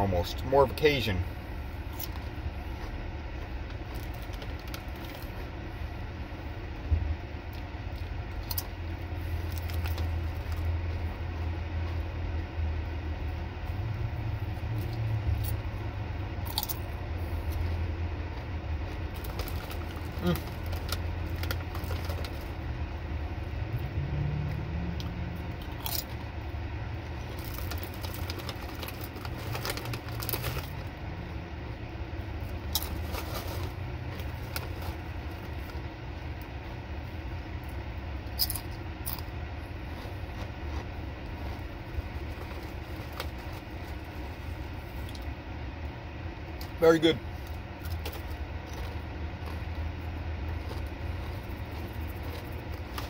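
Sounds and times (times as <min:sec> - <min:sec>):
steady low hum: 0:00.0 - 0:53.0
chips being chewed: 0:01.9 - 0:05.6, 0:07.5 - 0:12.1, 0:16.4 - 0:22.7, 0:24.5 - 0:26.3, 0:27.0 - 0:31.0, 0:32.5 - 0:35.8, 0:38.2 - 0:44.3, 0:47.4 - 0:53.0
foil chip bag crinkling: 0:03.7 - 0:05.5, 0:08.3 - 0:10.8, 0:18.8 - 0:22.7, 0:27.2 - 0:31.0, 0:32.4 - 0:35.8, 0:39.9 - 0:45.2, 0:47.3 - 0:53.0.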